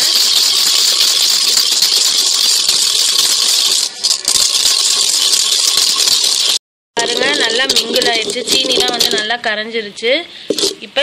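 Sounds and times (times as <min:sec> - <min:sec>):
wooden churner rattling in clay pot: 0:00.0 - 0:09.4.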